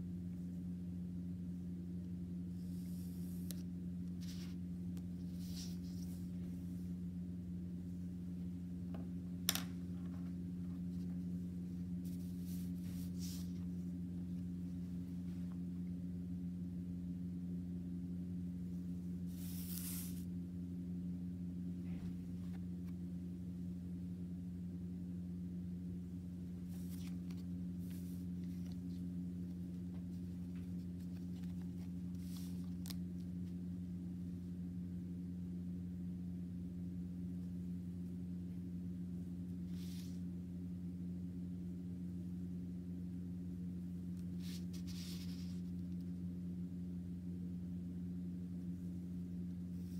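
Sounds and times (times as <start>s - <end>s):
steady low hum: 0.0s - 49.9s
paper cards rustling: 2.7s - 6.7s, 9.4s - 13.8s, 19.3s - 20.2s, 26.6s - 33.6s, 44.4s - 46.0s.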